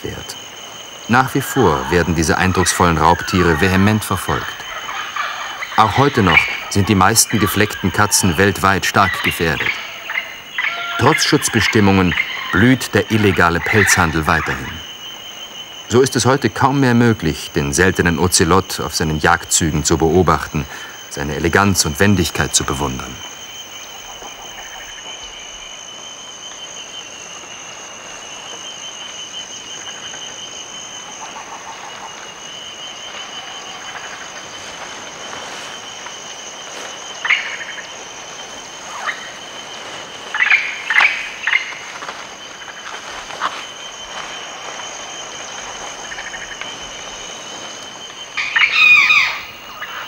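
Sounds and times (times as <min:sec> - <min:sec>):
insects trilling: 0:00.0 - 0:50.0
loud bird call: 0:01.1 - 0:14.8, 0:48.4 - 0:50.0
short bird calls: 0:48.4 - 0:50.0.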